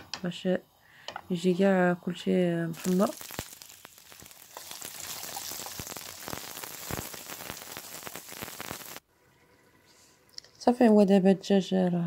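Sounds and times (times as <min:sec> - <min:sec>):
almonds sizzling in hot oil: 0:02.3 - 0:09.0.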